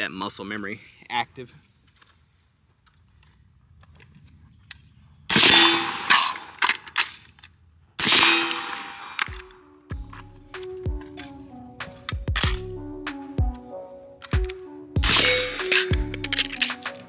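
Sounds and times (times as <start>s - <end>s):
suppressed rifle shots: 5.3s - 7.2s
background music: 9.2s - 17.0s
metallic clicks and clanks: 14.2s - 17.0s.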